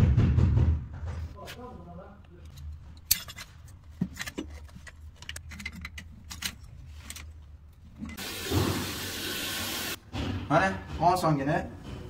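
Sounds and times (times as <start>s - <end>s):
water running with a hiss: 8.2s - 10.0s.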